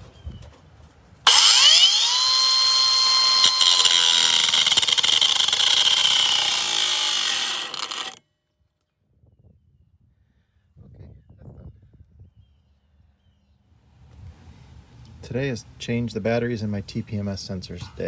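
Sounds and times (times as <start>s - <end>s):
angle grinder cutting metal: 1.3s - 8.2s.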